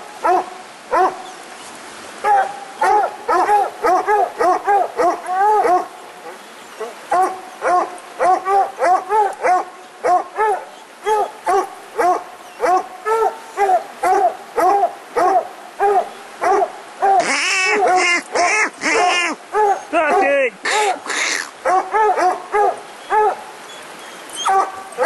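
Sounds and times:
dog barking: 0.2 - 1.2, 2.2 - 5.9, 6.8 - 20.3, 21.6 - 23.4, 24.4 - 25.0
higher-pitched dog barking fast: 14.0 - 20.2, 21.1 - 23.4.

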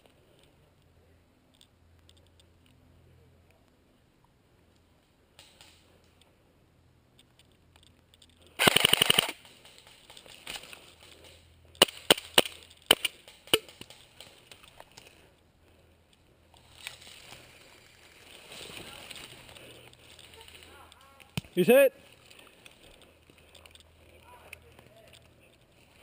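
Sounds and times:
airsoft gun full-auto burst: 8.6 - 9.5.

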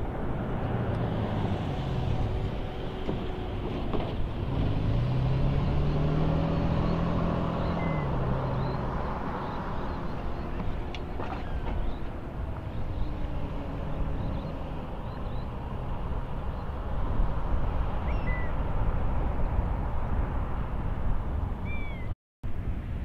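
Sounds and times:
low outdoor rumble: 0.0 - 23.0
faint bird chirps: 6.7 - 8.8, 18.0 - 18.5, 21.6 - 22.1.

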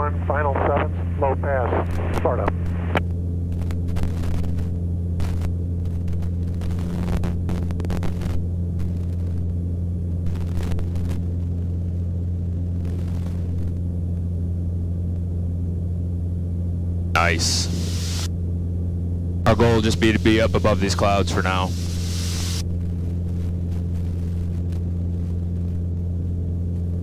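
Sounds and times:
propeller engine droning: 0.0 - 27.0
hissy crackles: 17.2 - 18.3, 19.8 - 22.6.

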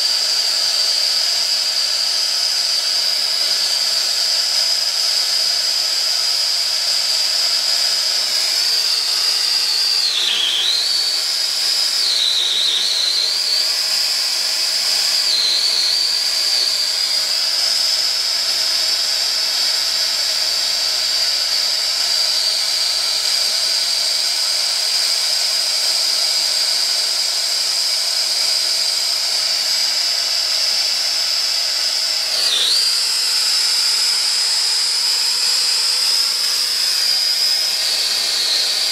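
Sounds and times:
torch flame hissing and whistling: 7.1 - 19.3, 32.2 - 38.9.

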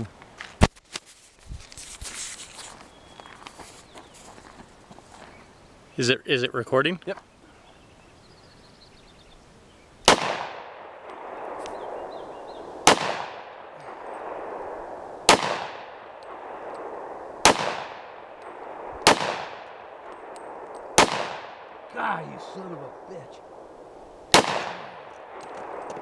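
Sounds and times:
pistol shots with echo: 10.0 - 23.7, 24.3 - 26.0.

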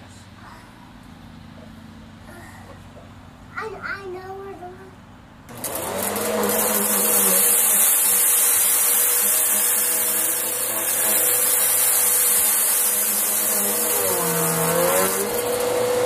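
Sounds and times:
upright vacuum cleaner running: 5.5 - 16.0.

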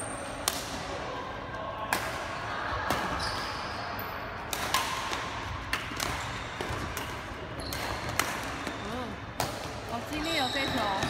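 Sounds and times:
rackets hitting shuttlecock: 4.4 - 11.0.

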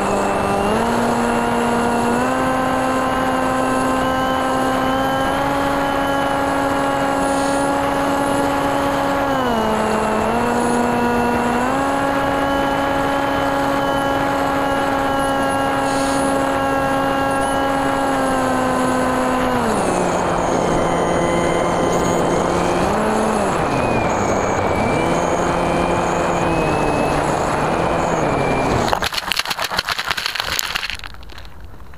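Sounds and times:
electric motor and propeller whine: 0.0 - 31.9.

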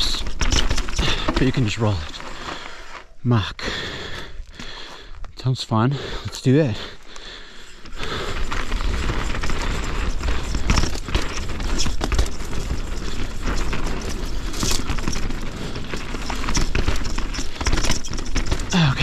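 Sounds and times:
bike clattering and knocking: 0.0 - 2.7, 7.9 - 19.0
tyres crunching over dirt and rocks: 0.0 - 19.0.

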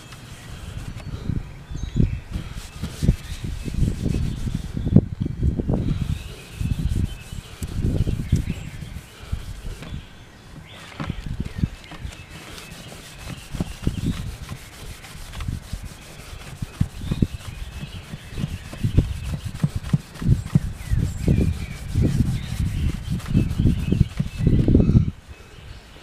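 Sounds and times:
cloth rubbing guitar top: 2.4 - 4.8, 10.8 - 24.7.

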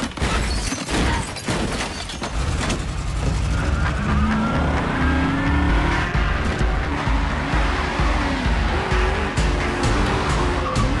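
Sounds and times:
sharp clattering impacts: 0.0 - 4.7
car engine revving up: 2.4 - 11.0.

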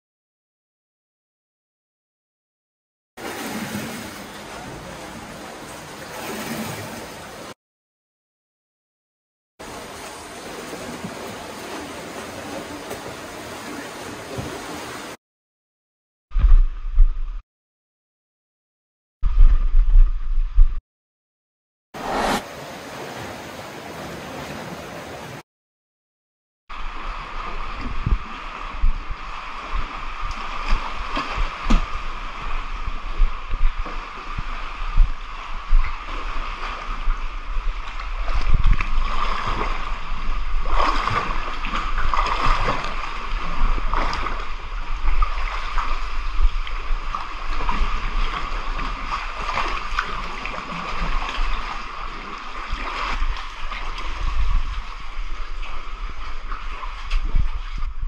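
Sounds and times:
knocks and thumps of water: 3.2 - 7.6, 9.6 - 15.2, 26.7 - 58.0
water sloshing and splashing: 3.2 - 7.6, 9.6 - 15.2, 26.7 - 58.0.

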